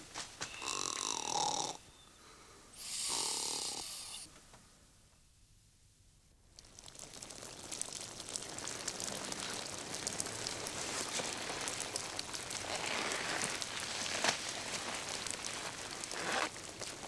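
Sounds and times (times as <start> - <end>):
steady crackling hiss: 0.0 - 17.0
sleeping bag rustling: 10.8 - 17.0.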